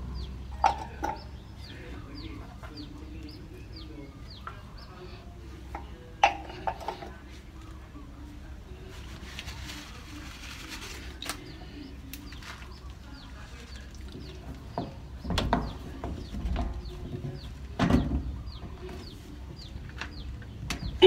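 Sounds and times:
bird chirping: 0.0 - 5.3, 11.4 - 21.0.

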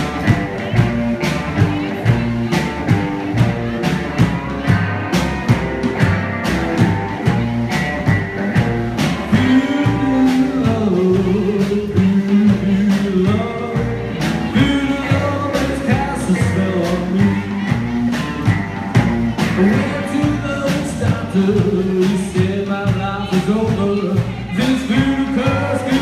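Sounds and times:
drum kit beat: 0.0 - 26.0
electric guitar: 0.0 - 26.0
upright double bass: 0.0 - 26.0
man singing: 7.2 - 26.0.

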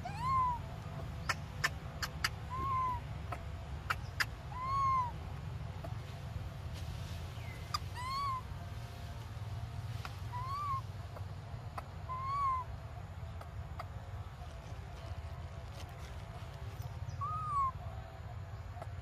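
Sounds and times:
macaque whimpering coo calls: 0.0 - 0.6, 1.3 - 3.0, 3.9 - 5.1, 7.7 - 8.4, 10.3 - 10.8, 12.0 - 12.7, 17.2 - 17.8
steady low rumble: 0.0 - 19.0.

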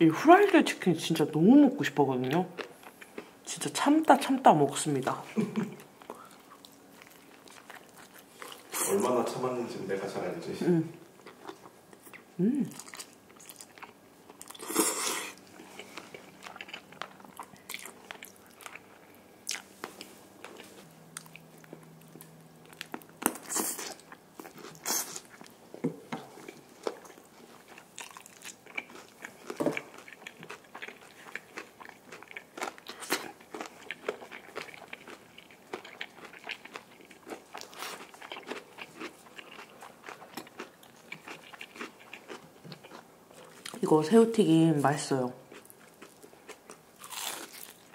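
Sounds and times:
chewing with small crackles: 2.1 - 4.3, 5.4 - 8.9, 11.0 - 43.8, 45.4 - 47.9
crunching fried chicken: 26.5 - 43.0, 45.5 - 47.9.

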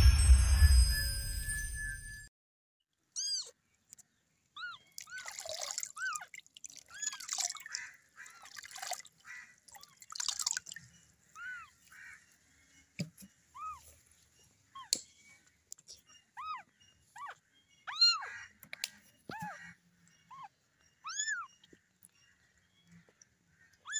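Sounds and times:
water splashing and dripping: 4.9 - 10.9.

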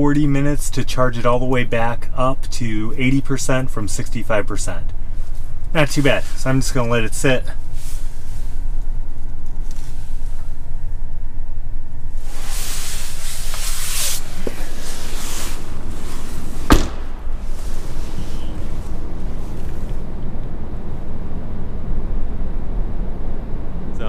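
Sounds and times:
low rumble: 0.1 - 24.0
rustling movement: 5.0 - 10.9, 12.1 - 20.3
car door slam: 16.6 - 17.5.

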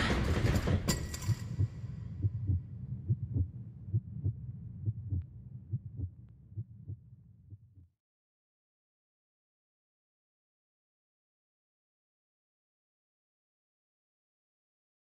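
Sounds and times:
heartbeat double thumps: 1.5 - 7.9.

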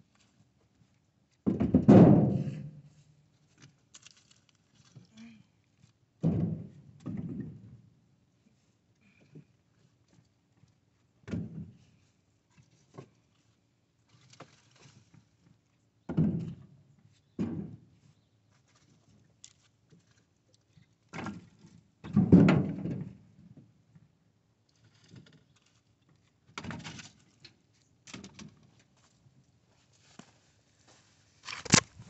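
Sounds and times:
firewood thunking into truck bed: 1.5 - 2.7.

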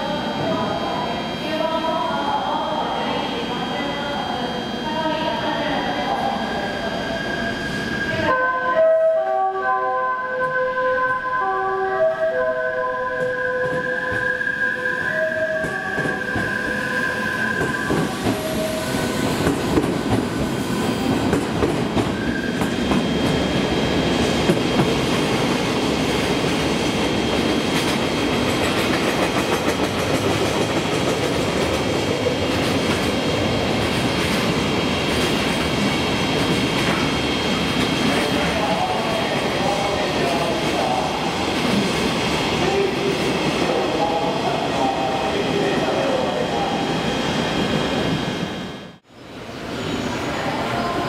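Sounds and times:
train wheels on rails: 15.5 - 51.0.

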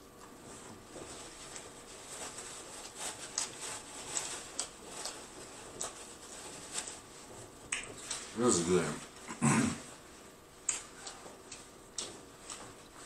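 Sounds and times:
person chewing fried food: 1.8 - 8.3, 10.0 - 13.0
wet mouth clicks and smacks: 7.7 - 8.0, 10.6 - 10.9.

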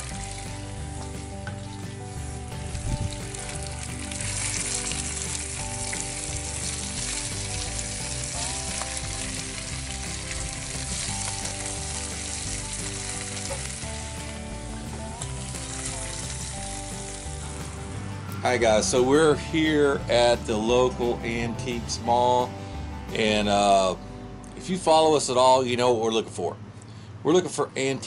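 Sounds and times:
bacon sizzling in skillets: 0.0 - 17.9.

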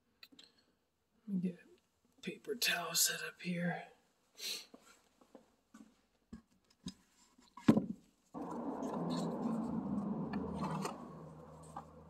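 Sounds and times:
low hum: 8.4 - 12.0
steady rushing noise: 8.4 - 12.0.

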